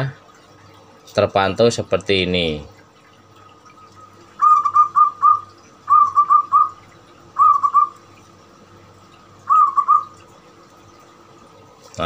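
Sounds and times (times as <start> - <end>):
dove cooing: 4.4 - 8.0, 9.4 - 10.2.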